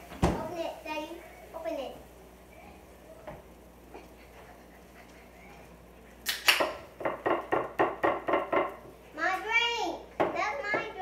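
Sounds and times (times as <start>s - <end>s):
child's hands smacking: 6.2s - 6.9s.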